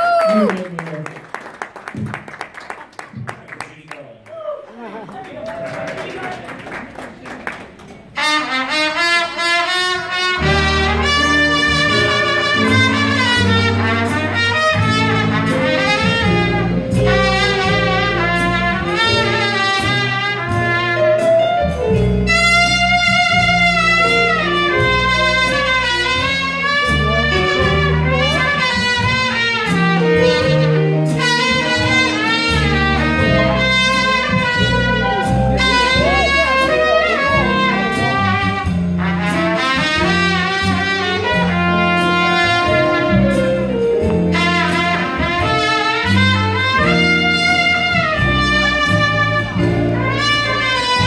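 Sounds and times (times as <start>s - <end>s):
drums: 1.8s - 3.5s, 8.2s - 51.0s
piano: 6.2s - 51.0s
trumpet solo: 8.2s - 51.0s
upright bass: 10.3s - 51.0s.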